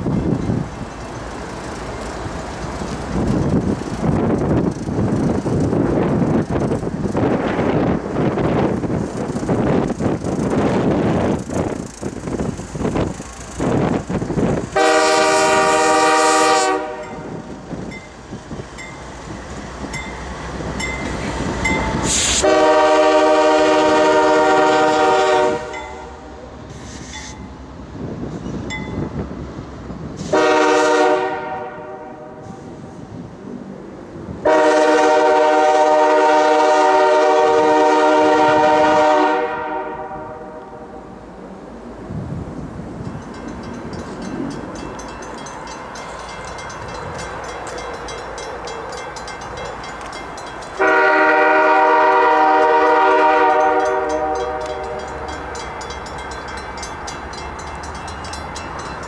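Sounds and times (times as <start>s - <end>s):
locomotives rumbling: 0.0s - 24.5s
train wheels on rails: 0.0s - 59.0s
locomotive air horn blasts: 14.8s - 17.4s, 21.9s - 26.4s, 30.2s - 32.8s, 34.4s - 41.1s, 50.8s - 55.2s.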